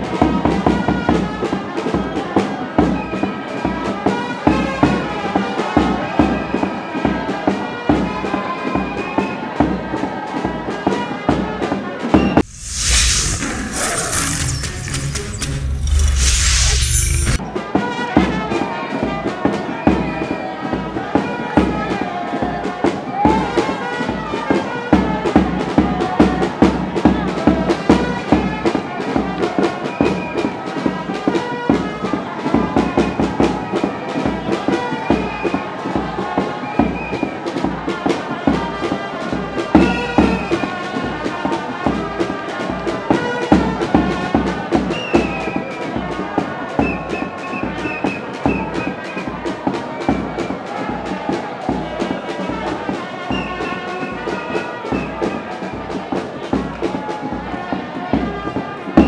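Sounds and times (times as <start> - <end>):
music with steady beat: 13.9 - 16.3.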